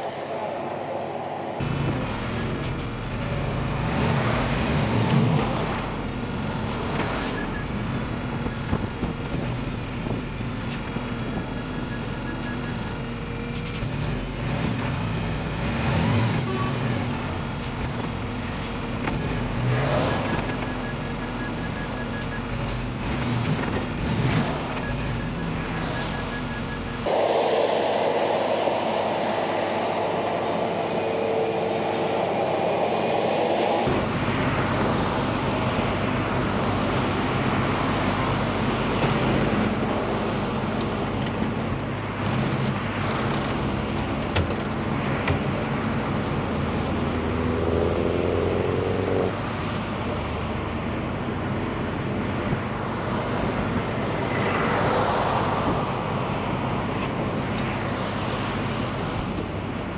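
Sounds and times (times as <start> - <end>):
heavy engine running: 0.0 - 59.9
motorway traffic roar: 0.0 - 59.9
short rising whine: 27.0 - 35.2.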